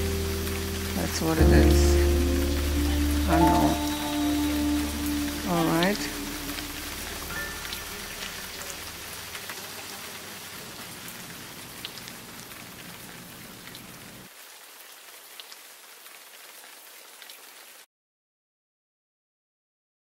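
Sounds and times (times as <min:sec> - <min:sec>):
low hum: 0:00.0 - 0:09.0
rain-like hiss and patter: 0:00.0 - 0:17.9.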